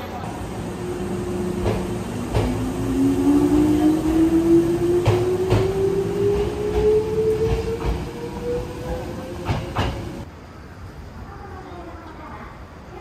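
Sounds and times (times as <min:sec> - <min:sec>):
electric train motor whine: 0:00.4 - 0:10.2
train wheels clacking: 0:00.6 - 0:10.3.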